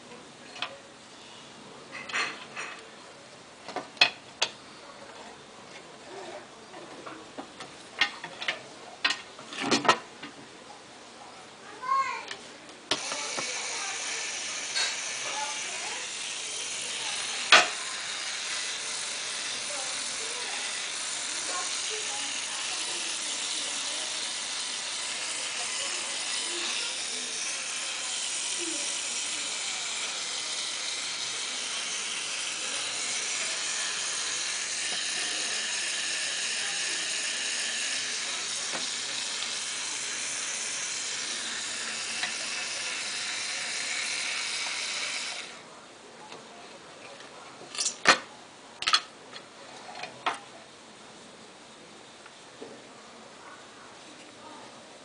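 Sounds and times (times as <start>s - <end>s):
electric motor whirring: 12.9s - 45.6s.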